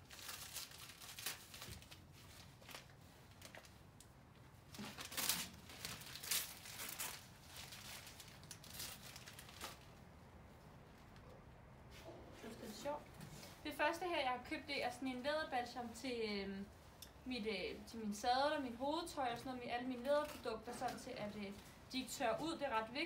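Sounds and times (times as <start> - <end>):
wrapping paper crinkling and tearing: 0.0 - 3.9, 4.6 - 10.1.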